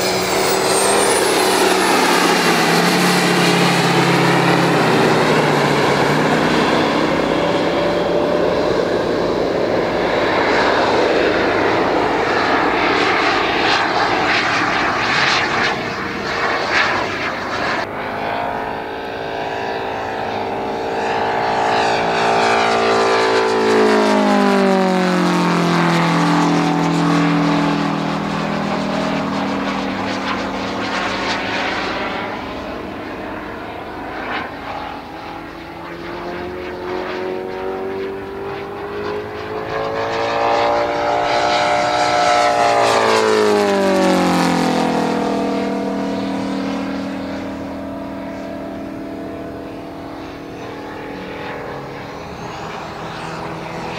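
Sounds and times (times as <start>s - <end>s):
model plane propeller engine: 0.0s - 53.9s.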